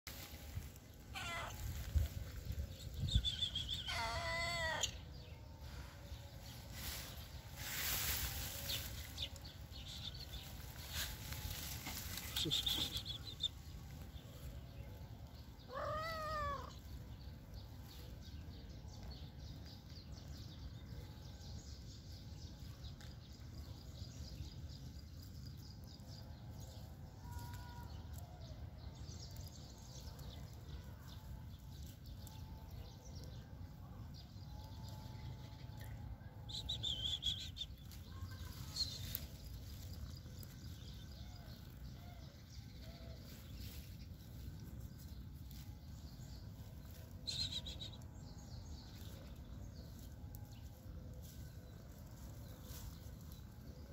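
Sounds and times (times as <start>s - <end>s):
cat meowing: 1.1s - 1.6s, 3.9s - 4.9s, 15.7s - 16.7s.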